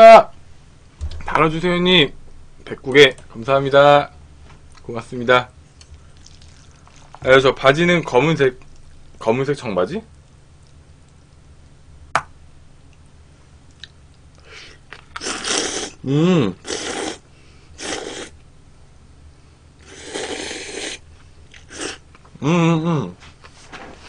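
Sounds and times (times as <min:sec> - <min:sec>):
chewing: 0:05.8 - 0:07.2
person slurping noodles: 0:15.2 - 0:16.0, 0:16.6 - 0:17.2, 0:17.8 - 0:18.3, 0:19.8 - 0:21.0, 0:21.6 - 0:22.0
person humming: 0:16.0 - 0:16.7, 0:22.4 - 0:23.2.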